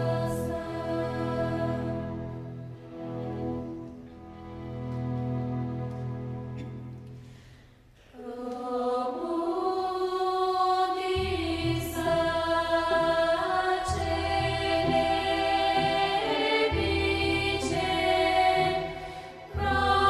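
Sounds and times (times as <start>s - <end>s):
choir singing held chords: 0.0s - 3.8s, 8.1s - 20.0s.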